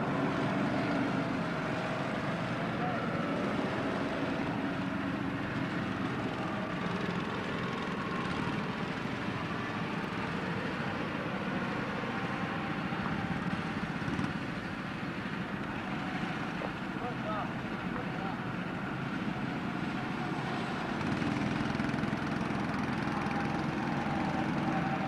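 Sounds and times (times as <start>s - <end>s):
go-kart engines droning: 0.0s - 25.0s.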